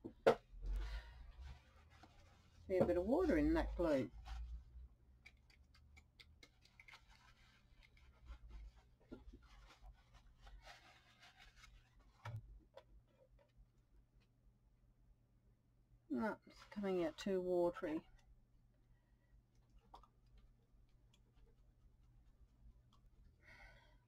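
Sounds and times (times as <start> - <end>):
paper tissue rustling: 0.8 - 4.9, 6.7 - 12.2.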